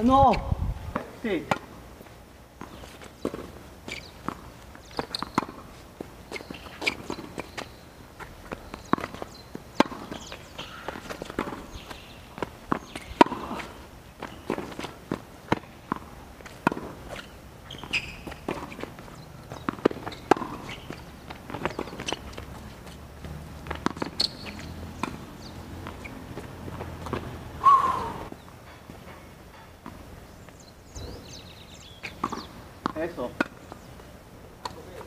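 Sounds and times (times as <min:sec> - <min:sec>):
players' footsteps: 0:00.0 - 0:35.0
tennis ball striking racket: 0:02.6 - 0:05.7, 0:08.5 - 0:30.1, 0:32.1 - 0:33.6
ball bouncing on court: 0:19.5 - 0:22.5, 0:23.3 - 0:27.4.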